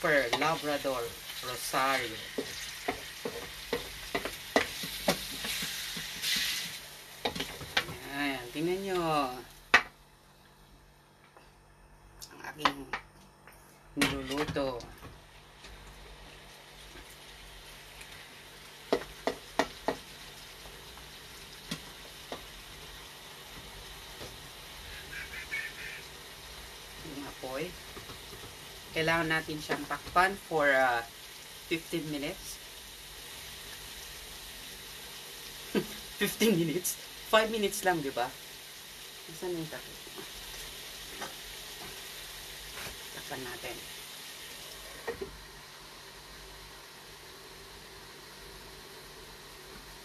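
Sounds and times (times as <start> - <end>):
meat sizzling in a pan: 0.0 - 10.1, 15.2 - 50.0
utensil tapping against pan: 2.4 - 5.6, 18.9 - 20.0.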